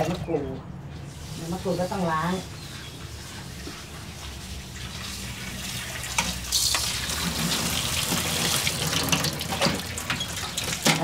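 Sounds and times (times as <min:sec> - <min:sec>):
leaves rinsed in colander: 0:00.0 - 0:11.0
tap water running into sink: 0:03.2 - 0:11.0.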